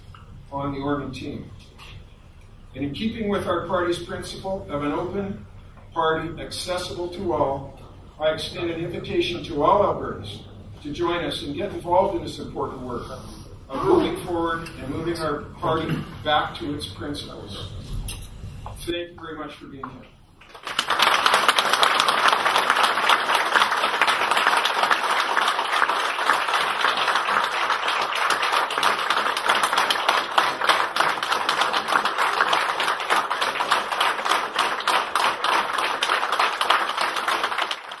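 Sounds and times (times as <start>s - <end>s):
audience applauding: 20.4s - 38.0s.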